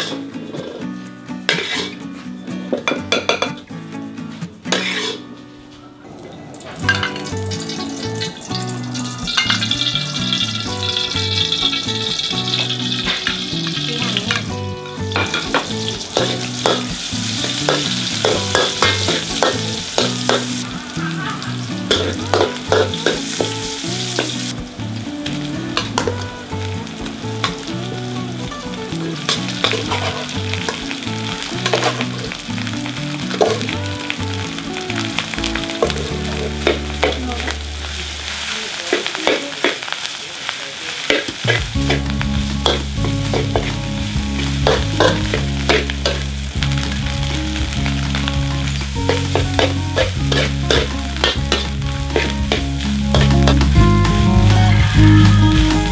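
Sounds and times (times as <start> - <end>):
hot oil sizzling in a wok: 0.0 - 2.0, 3.1 - 3.5, 4.7 - 5.2, 6.8 - 55.9
metal spatula scraping a wok: 0.0 - 2.3, 4.7 - 5.3, 6.8 - 14.4, 15.1 - 24.5, 29.2 - 30.8, 49.0 - 52.5.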